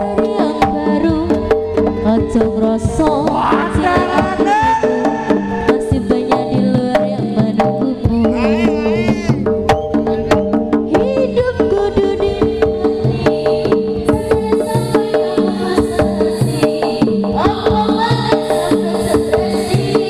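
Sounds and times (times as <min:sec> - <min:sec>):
hand drums beating fast: 0:00.0 - 0:20.0
high wavering melody: 0:08.2 - 0:10.5.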